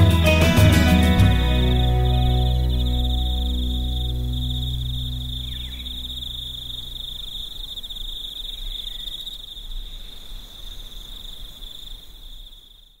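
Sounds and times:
low rumble: 1.2s - 7.4s
high-pitched insect chirring: 1.4s - 9.4s.

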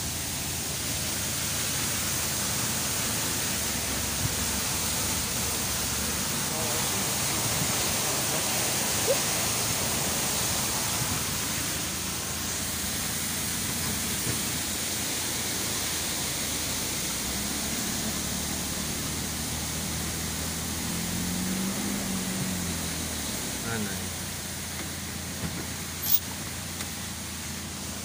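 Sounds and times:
waterfall rushing: 0.0s - 24.5s
car road noise on wet road: 0.0s - 28.0s
low engine hum: 0.0s - 28.0s.

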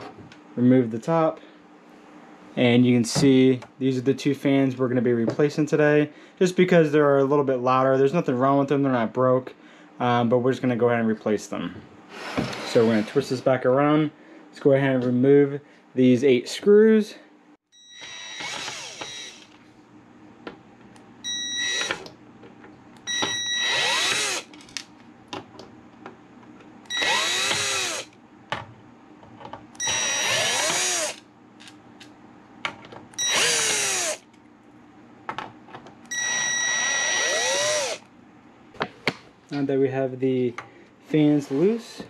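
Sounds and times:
cordless drill motor whine: 17.8s - 19.6s, 21.2s - 22.0s, 23.1s - 24.5s, 26.9s - 28.2s, 29.8s - 31.2s, 33.2s - 34.2s, 36.1s - 38.1s.

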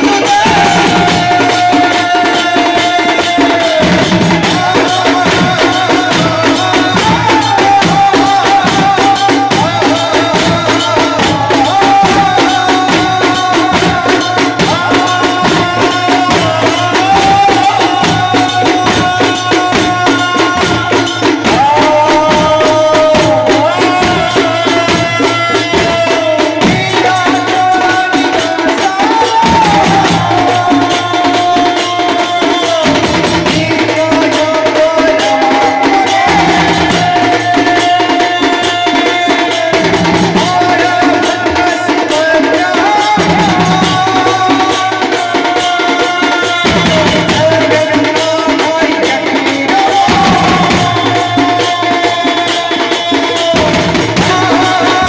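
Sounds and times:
fast percussion rhythm: 0.0s - 55.0s
man singing through loudspeakers: 0.0s - 55.0s.

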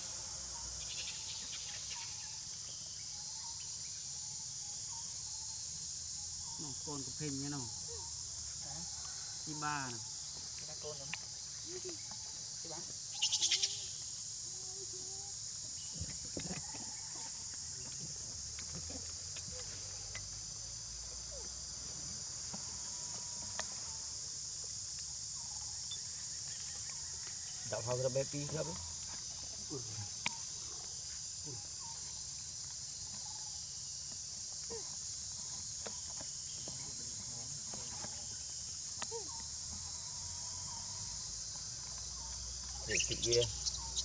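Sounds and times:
insect chorus drone: 0.0s - 44.0s
rapid chirps: 42.9s - 44.0s.

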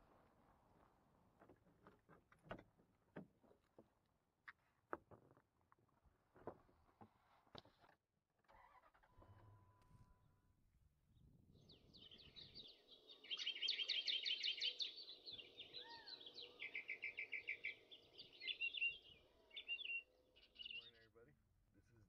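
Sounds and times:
small birds singing: 11.2s - 21.3s.

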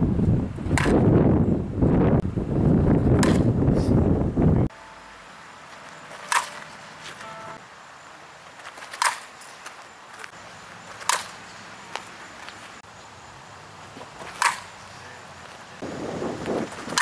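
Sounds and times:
metal bat pinging softball: 0.7s - 1.0s, 3.2s - 3.5s, 6.1s - 6.7s, 9.0s - 9.3s, 11.0s - 11.4s, 14.3s - 14.7s.

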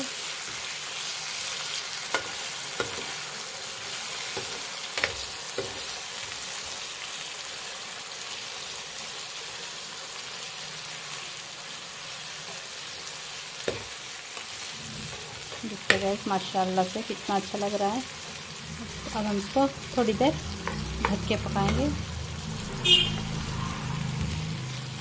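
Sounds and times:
food sizzling in frying pan: 0.0s - 25.0s
metal spoon knocking pan: 15.2s - 16.3s, 20.0s - 22.0s.

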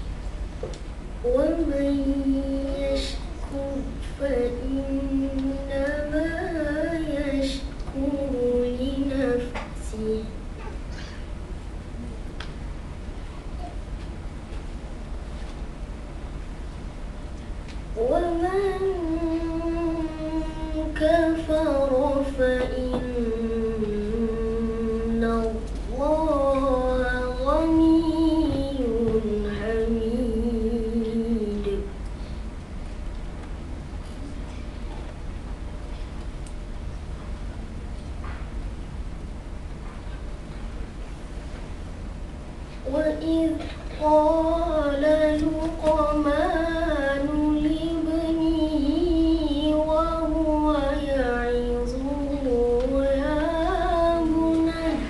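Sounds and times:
boy reciting melodically: 1.2s - 10.9s, 17.9s - 32.0s, 42.8s - 55.0s.

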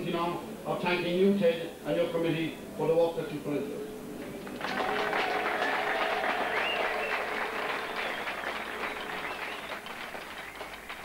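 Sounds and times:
crowd applauding: 4.4s - 11.0s.

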